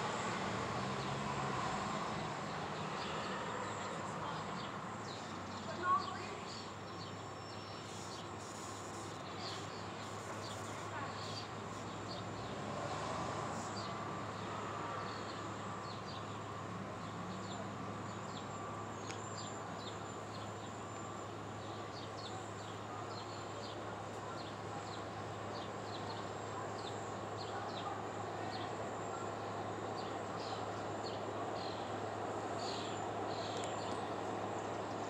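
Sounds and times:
small birds chirping: 2.2s - 35.0s
insect buzz: 7.0s - 14.0s.

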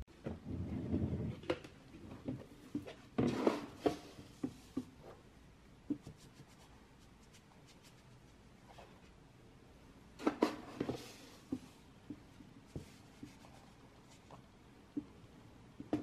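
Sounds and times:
cat litter scattered and scraped: 3.0s - 4.8s.

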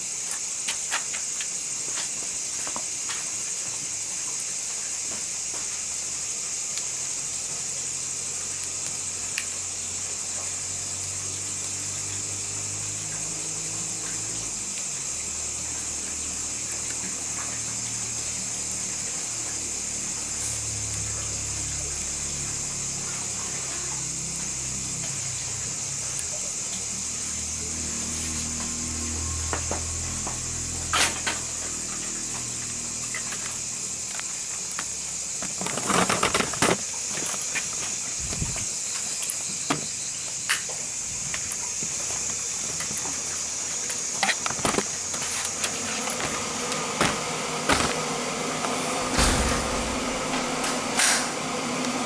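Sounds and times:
high-pitched hiss: 0.0s - 52.0s
low hum: 45.5s - 51.6s.

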